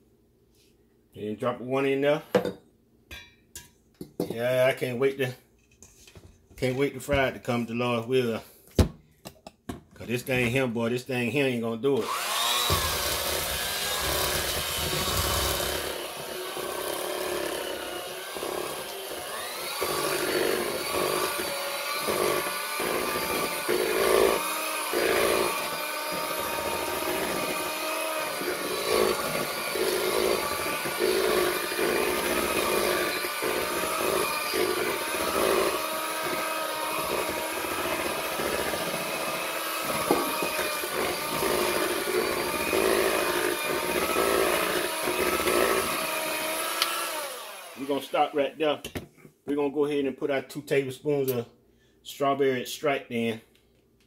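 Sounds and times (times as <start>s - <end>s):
electric hand mixer running: 12.0s - 48.3s.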